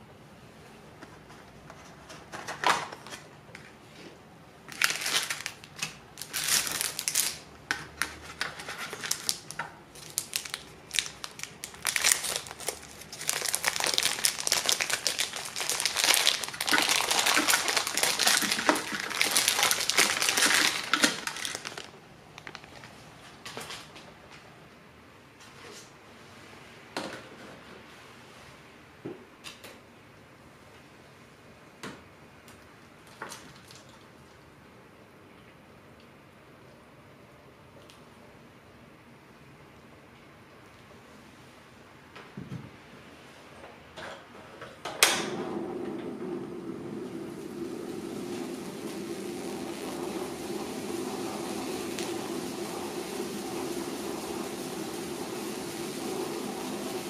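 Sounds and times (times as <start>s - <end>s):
plastic packaging crinkling and tearing: 4.7s - 23.1s.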